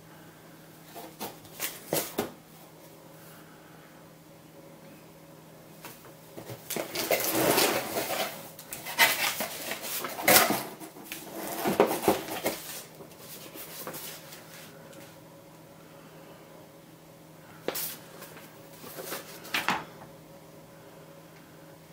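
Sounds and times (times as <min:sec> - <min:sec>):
paper rustling: 0:06.5 - 0:14.8, 0:17.7 - 0:19.7
tray scraping against cardboard box: 0:06.7 - 0:12.8.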